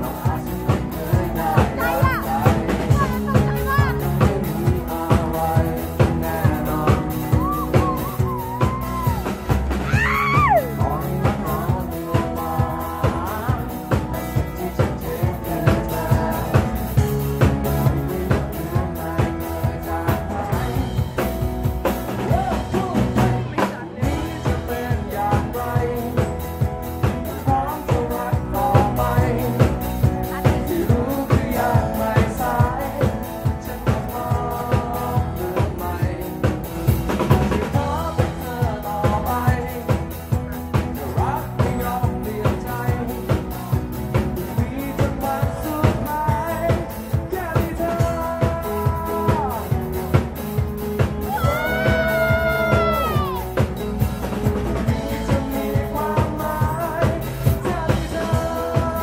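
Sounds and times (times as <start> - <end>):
person singing: 0.0 - 50.2, 51.2 - 59.0
acoustic guitars: 0.0 - 59.0
drum kit beat: 0.0 - 59.0.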